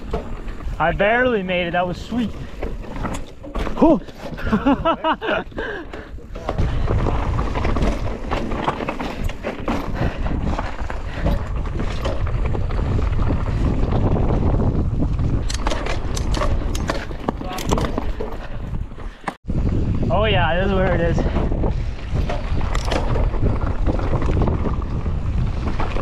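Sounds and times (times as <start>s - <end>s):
bike chain and frame rattling: 0.0s - 26.0s
tyres on dirt: 0.0s - 26.0s
wind buffeting microphone: 4.4s - 26.0s.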